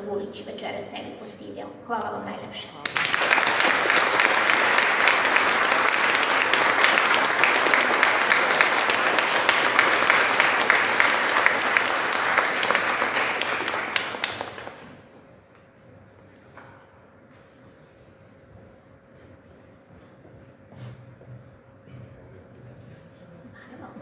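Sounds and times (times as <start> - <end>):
audience applauding: 2.8 - 15.0.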